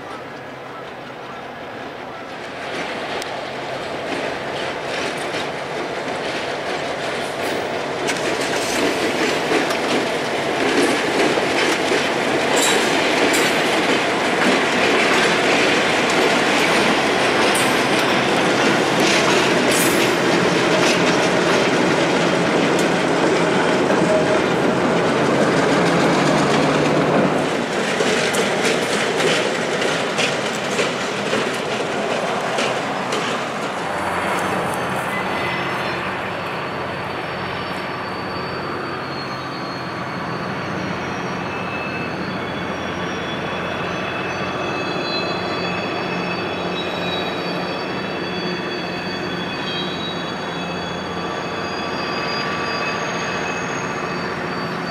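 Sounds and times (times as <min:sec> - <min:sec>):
diesel locomotives working hard: 0:00.0 - 0:54.9
train wheels clacking over rail joints: 0:00.4 - 0:35.2.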